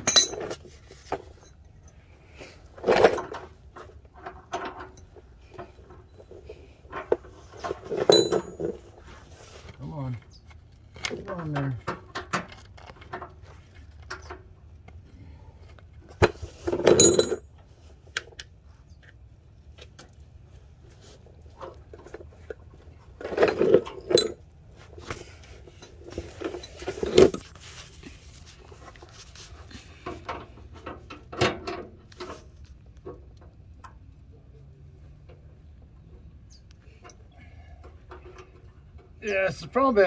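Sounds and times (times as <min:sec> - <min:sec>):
metal tools clinking: 0:00.0 - 0:02.0, 0:07.6 - 0:08.9, 0:16.7 - 0:17.5, 0:23.2 - 0:24.4, 0:25.6 - 0:27.4.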